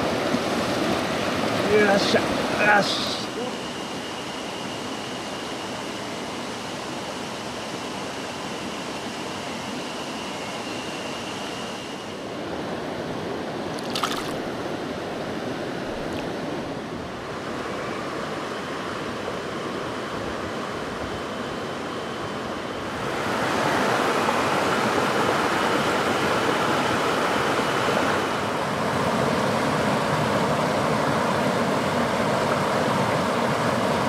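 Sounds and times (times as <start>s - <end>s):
stream rushing over rocks: 23.0s - 34.0s.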